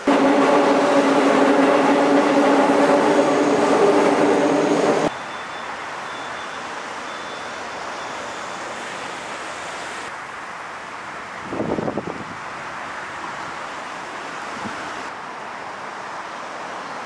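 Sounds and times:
droning hum: 0.0 - 5.1
steady rushing noise: 0.0 - 5.1
subway train rumbling: 0.0 - 7.0.

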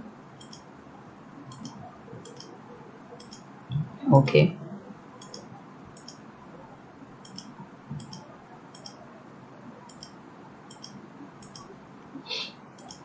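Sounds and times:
computer mouse clicking: 0.4 - 0.7, 1.5 - 2.6, 3.2 - 3.5, 5.2 - 6.2, 7.2 - 9.0, 9.9 - 11.7, 12.8 - 13.0.

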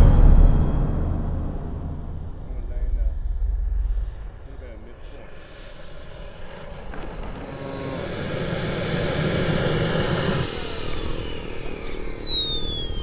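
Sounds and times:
turbine whine spooling down: 1.6 - 13.0
model jet turbine passing: 2.6 - 13.0.

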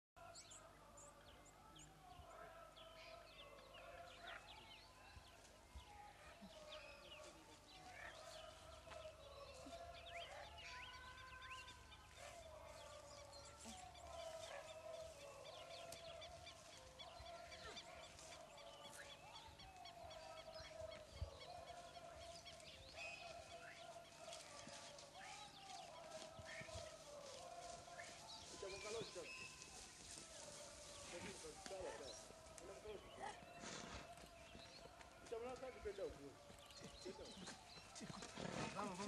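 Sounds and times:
birds chirping and whistling: 13.2 - 23.9, 24.8 - 31.5.

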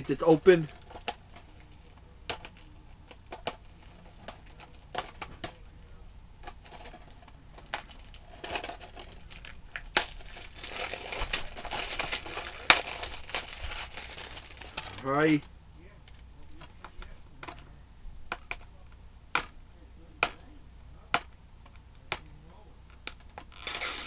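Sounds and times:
plastic shrink wrap crinkling: 0.0 - 17.7, 22.9 - 24.0.

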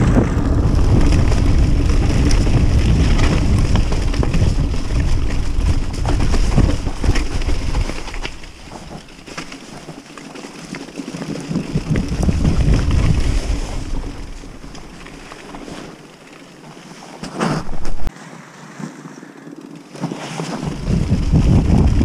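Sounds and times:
wind rumble on microphone: 0.0 - 9.1, 11.4 - 15.6, 20.5 - 22.0
bike knocks and rattles: 0.0 - 18.1, 19.7 - 22.0
bike tyres on dirt and stones: 0.0 - 22.0.

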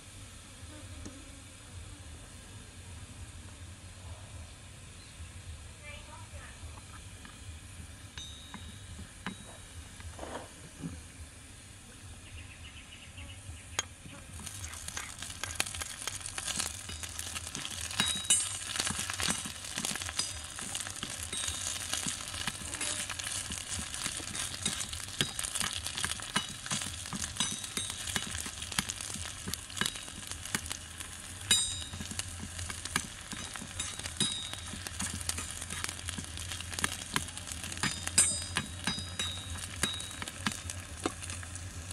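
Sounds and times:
food sizzling in oil: 14.3 - 41.9.

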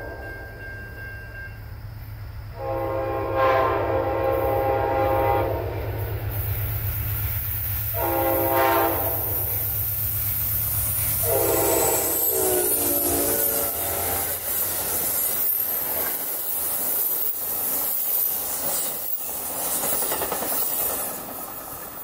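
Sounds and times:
train horn: 2.5 - 6.2, 7.9 - 9.6, 11.2 - 14.4
wheels clicking over rail joints: 12.0 - 22.0.

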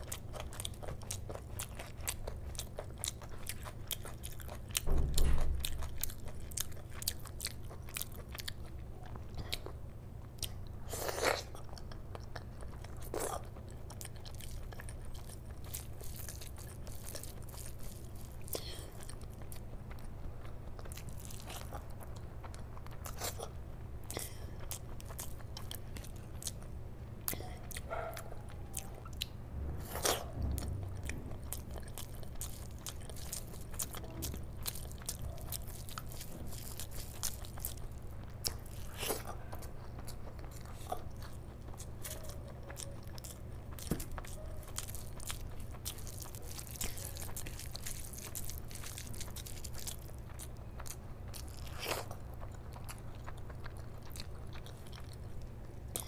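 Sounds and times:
chewing and mouth sounds: 0.0 - 56.0
steady low hum: 0.0 - 56.0.

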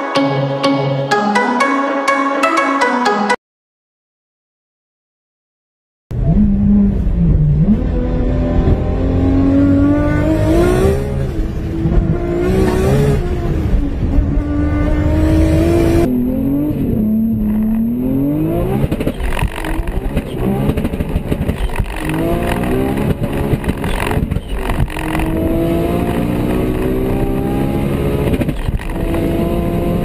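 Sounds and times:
car engine accelerating: 6.1 - 30.0
car engine revving: 6.1 - 30.0.

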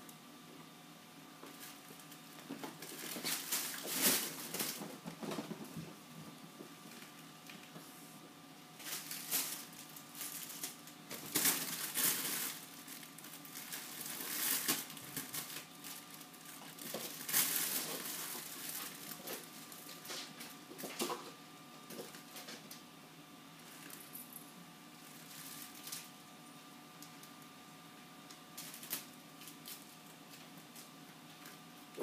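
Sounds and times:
fabric tunnel crinkling: 8.8 - 20.4.

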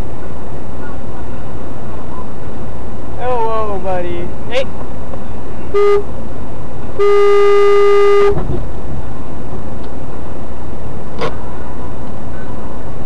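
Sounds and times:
traffic rumble: 0.0 - 13.0
car horn honking: 5.7 - 6.1, 7.0 - 8.5.

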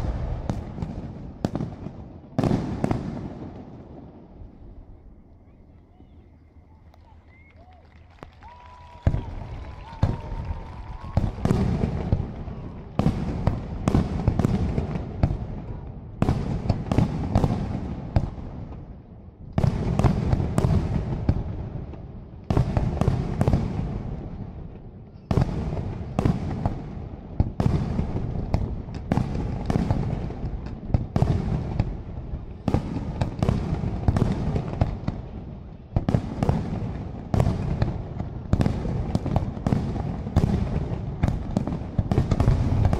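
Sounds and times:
firework crackling: 0.0 - 19.0, 19.6 - 42.9.

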